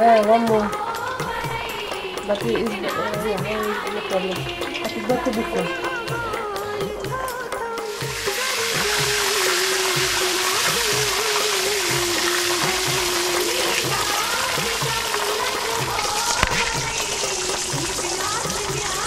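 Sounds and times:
background music with steady beat: 0.0 - 19.0
sauce sizzling in pot: 7.8 - 19.0.

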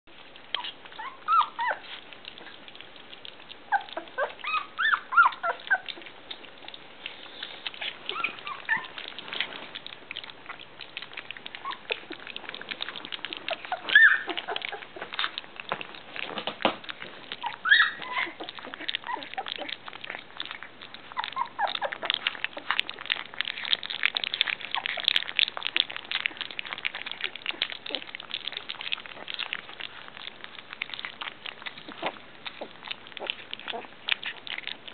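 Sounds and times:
puppies lapping food: 0.1 - 34.9
puppies whimpering: 0.2 - 34.9.

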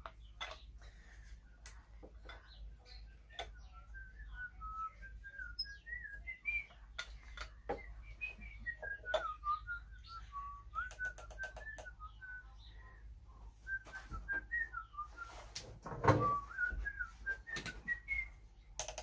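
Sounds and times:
person whistling: 16.2 - 18.4.

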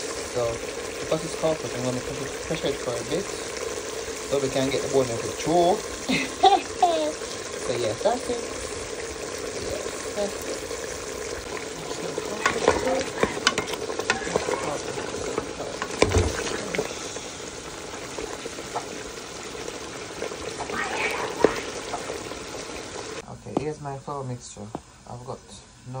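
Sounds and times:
stew sizzling and bubbling: 0.0 - 26.0
spoon knocking against a pot: 12.4 - 14.4.

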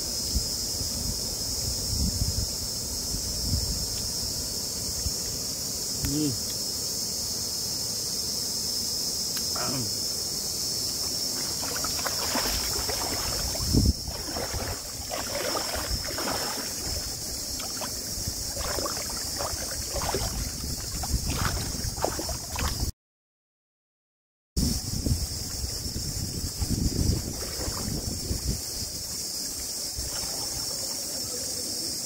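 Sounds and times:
steady high hiss: 0.0 - 22.3
person humming: 9.6 - 10.0.

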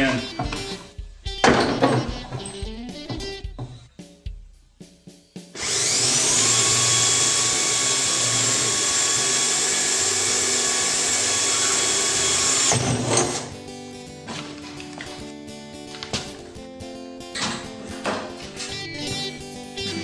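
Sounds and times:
electric drill boring plastic: 5.6 - 13.5.

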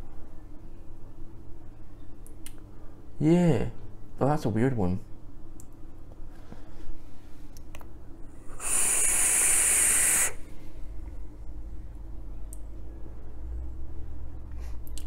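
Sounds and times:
vape hissing and coil sizzling: 8.5 - 10.4
person breathing out: 8.5 - 10.6.

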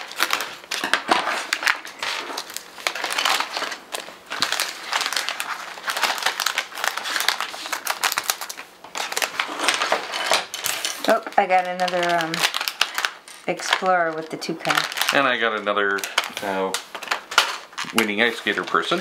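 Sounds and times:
plastic bags crinkling: 0.0 - 19.0.

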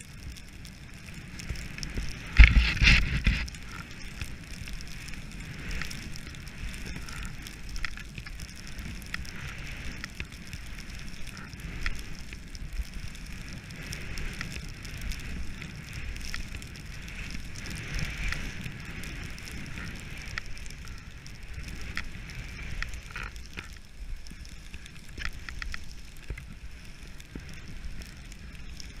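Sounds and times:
ski edges crackling: 0.0 - 29.0
skis scraping over snow: 0.0 - 29.0
wind on microphone: 0.0 - 29.0.

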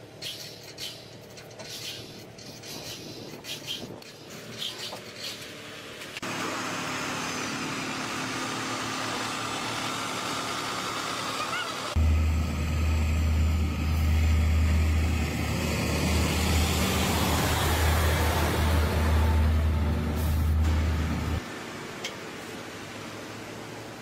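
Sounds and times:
road and engine noise: 0.0 - 24.0
deep diesel truck rumble: 5.6 - 21.4.

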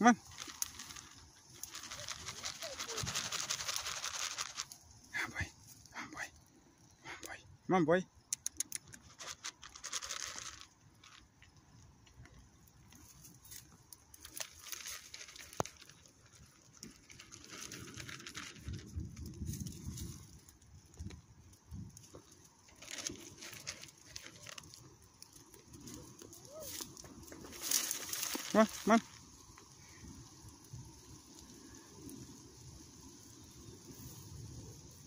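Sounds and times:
rustling and light crunching: 0.1 - 7.0, 8.6 - 35.0.

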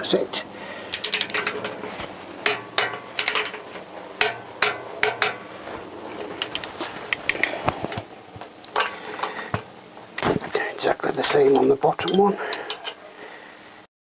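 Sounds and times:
torque wrench metallic clicks: 0.9 - 1.6.

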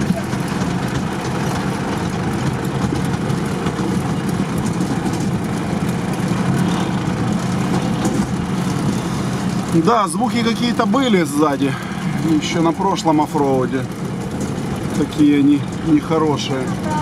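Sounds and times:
drivetrain and road noise: 0.0 - 17.0
vehicle engine running: 0.0 - 17.0.

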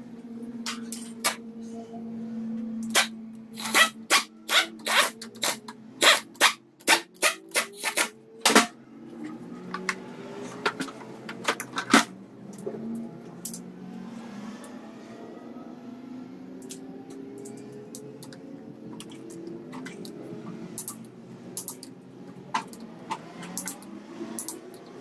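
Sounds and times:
pneumatic wrench bursts: 2.9 - 8.1.

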